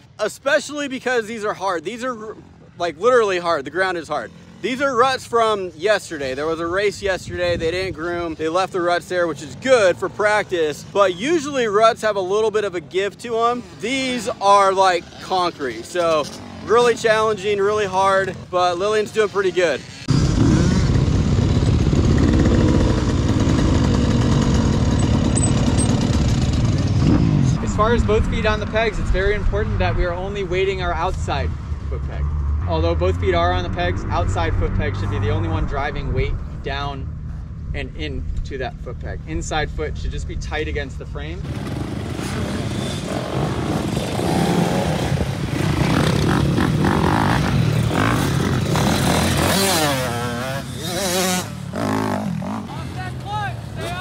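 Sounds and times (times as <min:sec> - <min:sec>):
dirt bike engine running: 0:15.0 - 0:39.8, 0:40.6 - 0:54.0.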